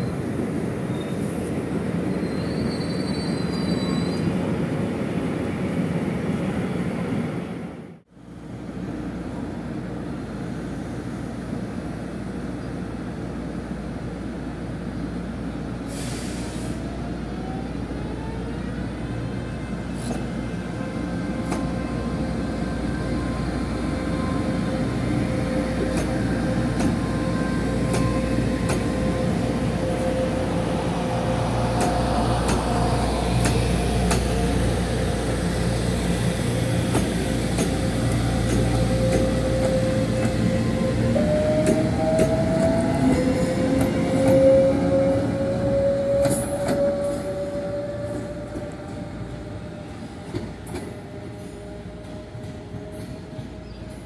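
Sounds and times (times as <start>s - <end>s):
train wheels clicking over rail joints: 27.8s - 29.0s, 31.7s - 34.4s, 36.7s - 40.5s, 41.6s - 44.4s.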